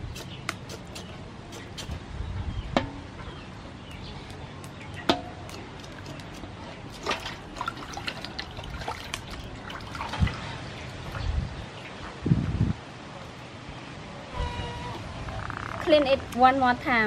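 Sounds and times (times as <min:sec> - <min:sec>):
water sloshing in metal basin: 0:06.9 - 0:11.2.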